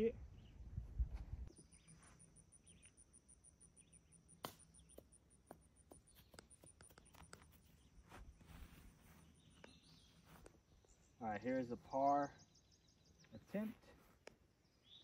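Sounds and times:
high-pitched insect call: 1.5s - 7.8s.

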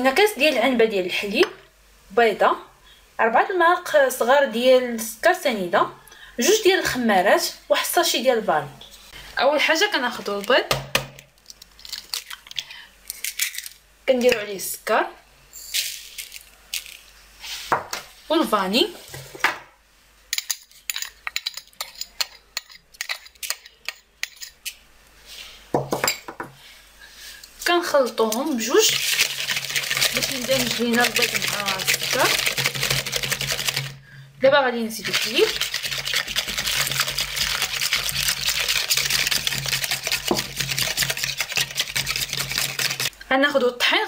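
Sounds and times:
whisk clicking in plastic bowl: 28.8s - 33.9s, 35.0s - 43.1s.

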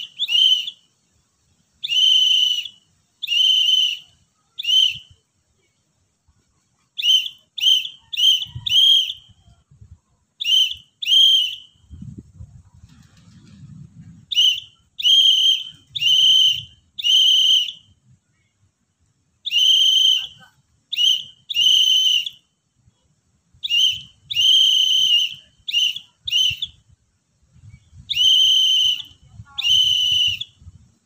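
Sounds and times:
whistle blasts: 0.0s - 0.9s, 1.8s - 5.2s, 7.0s - 9.6s, 10.4s - 12.0s, 14.3s - 18.0s, 19.4s - 22.5s, 23.6s - 26.8s, 28.0s - 30.7s.

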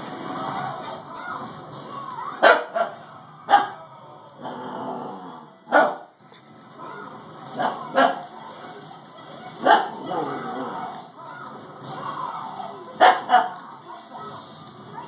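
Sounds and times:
puppy growling: 3.6s - 5.6s.

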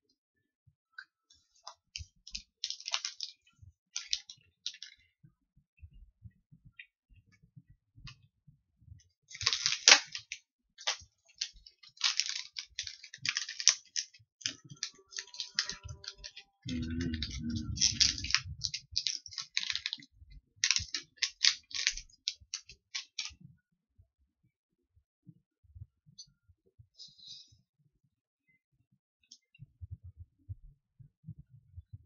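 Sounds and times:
plastic wrapper crinkling: 2.6s - 3.3s, 4.0s - 5.0s, 9.3s - 20.0s, 20.6s - 23.3s
low muffled rumble: 16.7s - 18.7s.

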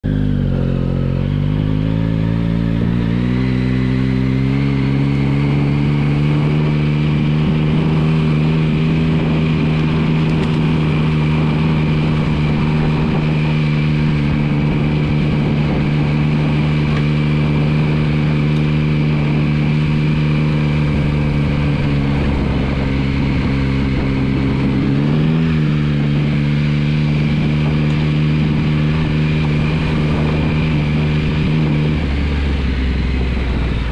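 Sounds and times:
motorcycle engine pulling away: 0.0s - 33.9s.

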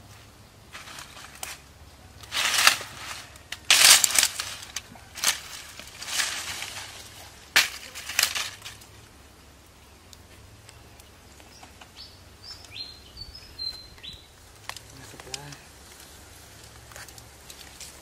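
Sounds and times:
footsteps crunching dry leaves: 0.7s - 8.9s
twig cracking: 0.8s - 9.1s, 14.0s - 18.0s.

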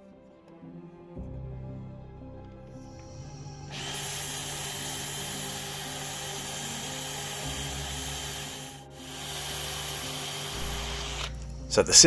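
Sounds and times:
motors whining: 2.8s - 12.0s.

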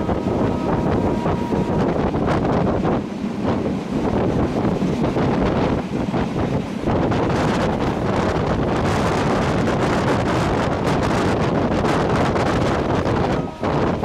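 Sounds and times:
moving train rumble: 0.0s - 14.0s
wind buffeting microphone: 0.0s - 14.0s.

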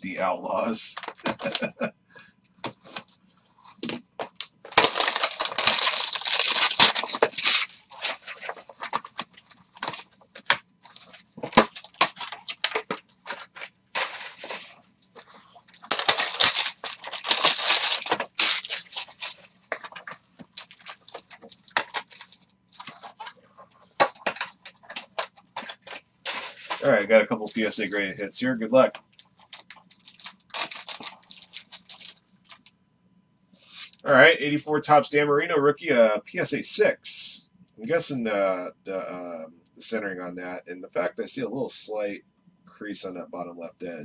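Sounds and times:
foil packs crinkling: 0.9s - 1.8s, 4.6s - 27.9s, 29.2s - 32.7s
packaging tearing: 1.0s - 1.8s, 4.7s - 23.3s, 24.0s - 27.7s, 29.3s - 32.7s.

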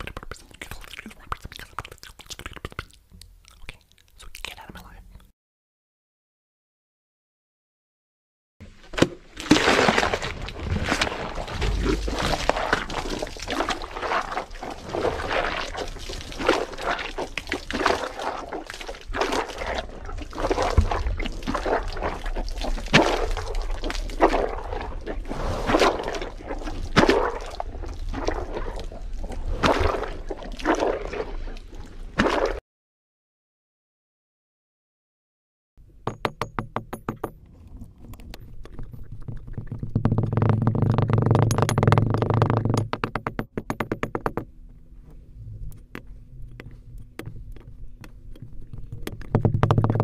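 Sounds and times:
water splashing: 9.0s - 32.6s.

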